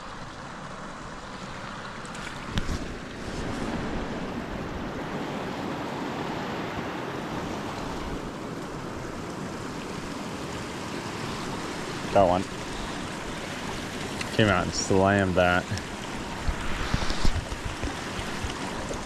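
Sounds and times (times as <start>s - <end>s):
wind buffeting microphone: 15.6s - 19.0s.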